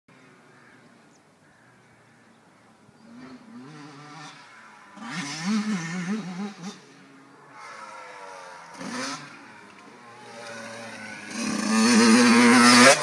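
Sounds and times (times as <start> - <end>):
dirt bike engine revving: 3.0 - 13.0.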